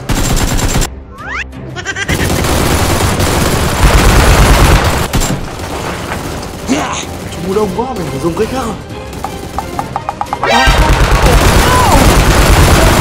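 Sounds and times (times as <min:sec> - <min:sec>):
rapid automatic gunfire: 0:00.0 - 0:00.9, 0:02.2 - 0:08.1, 0:10.7 - 0:13.0
background music: 0:00.0 - 0:13.0.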